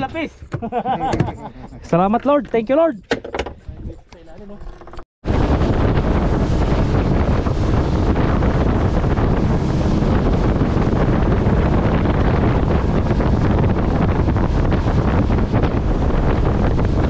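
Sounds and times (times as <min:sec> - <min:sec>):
wind buffeting microphone: 0:00.0 - 0:17.0
water rushing past hull: 0:05.3 - 0:17.0.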